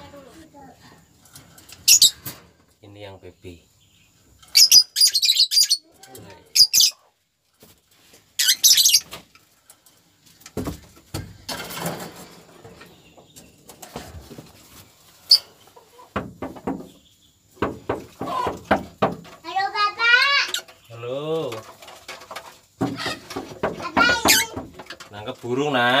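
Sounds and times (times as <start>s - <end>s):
lovebird squawking shrilly: 4.5s - 5.8s, 6.6s - 7.0s
rustling and knocks of handling: 7.4s - 8.4s, 9.0s - 26.0s.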